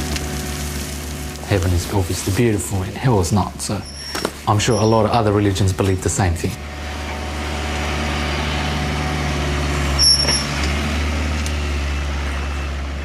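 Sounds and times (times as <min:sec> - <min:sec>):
engine humming: 0:00.0 - 0:13.0
high squeal: 0:03.7 - 0:05.3, 0:09.9 - 0:10.7.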